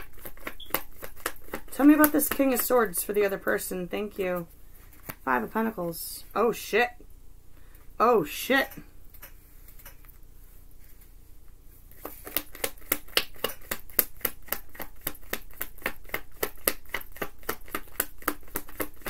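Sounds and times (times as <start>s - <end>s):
cards being shuffled: 0.0s - 2.7s, 4.8s - 5.3s, 12.0s - 19.0s.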